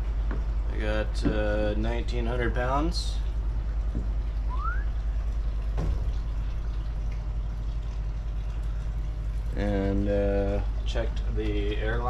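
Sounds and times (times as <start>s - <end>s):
low mechanical hum: 0.0s - 12.0s
short rising squeak: 4.5s - 4.9s.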